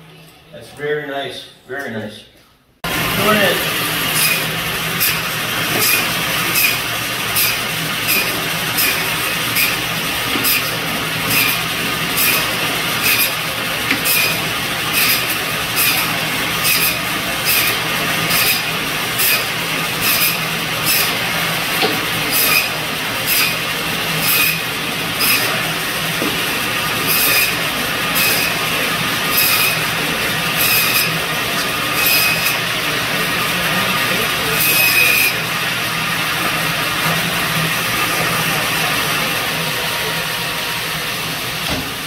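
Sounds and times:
band saw running: 2.8 - 42.0
saw rasping through bone: 4.1 - 25.6, 26.2 - 32.7, 34.5 - 35.4.

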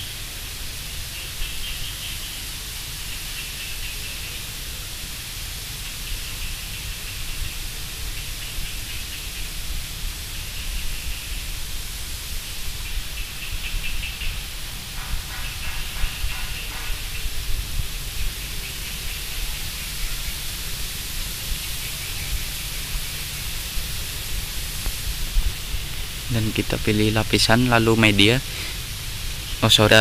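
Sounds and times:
steady background hiss: 0.0 - 30.0
low rumble: 14.4 - 28.1.

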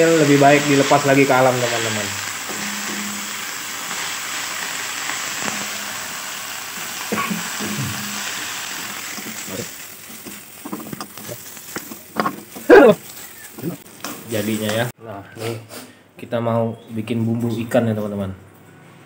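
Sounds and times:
leaves sizzling in a wok: 0.0 - 14.9.

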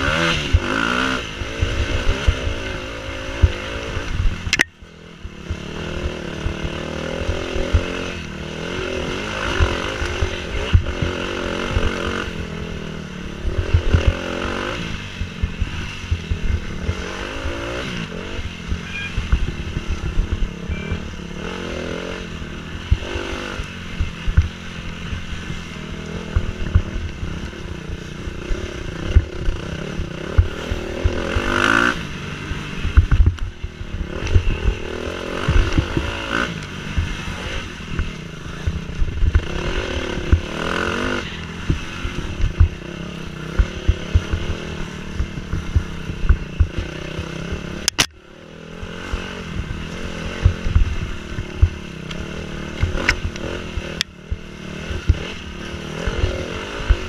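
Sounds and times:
dirt bike engine revving: 0.0 - 57.0
sharp click: 4.4 - 4.7, 47.8 - 48.2.

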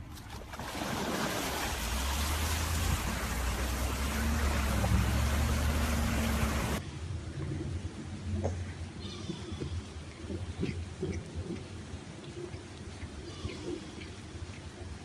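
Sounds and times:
wind and water spray rushing: 0.0 - 6.9
engine droning: 1.4 - 6.8.

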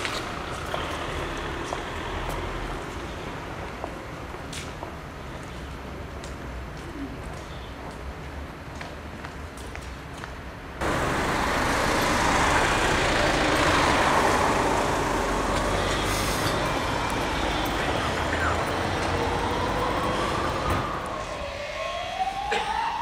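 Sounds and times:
street traffic noise: 0.0 - 23.0
wavering siren: 11.0 - 23.0.

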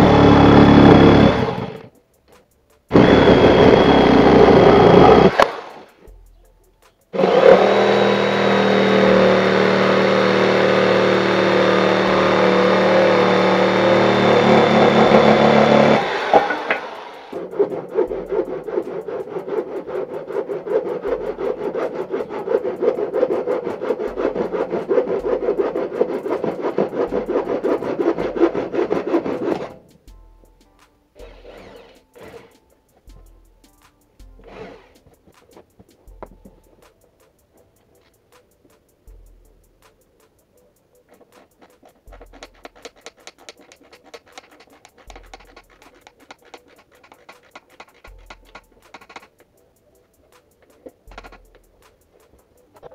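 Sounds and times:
hand saw cutting wood: 0.0 - 1.9, 2.9 - 5.9, 7.2 - 29.9, 31.2 - 32.6, 34.4 - 36.5, 41.1 - 49.4, 50.4 - 52.9
screwdriver driving screw into wood: 7.2 - 17.9, 41.7 - 49.4.

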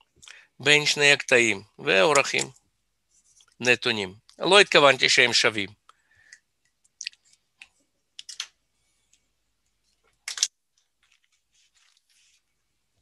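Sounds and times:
faint rustling: 10.8 - 13.0.

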